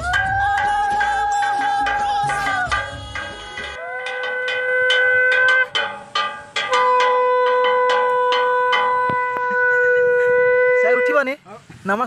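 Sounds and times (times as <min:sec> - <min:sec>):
conch shell blast: 0:01.8 - 0:11.2.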